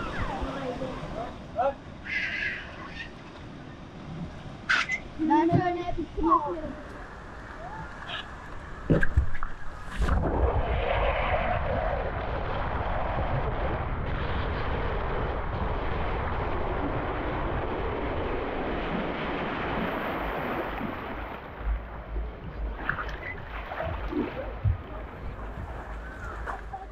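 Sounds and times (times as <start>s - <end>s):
rushing water: 0.0s - 26.9s
water splashes: 0.0s - 26.9s
wind buffeting microphone: 3.5s - 26.9s.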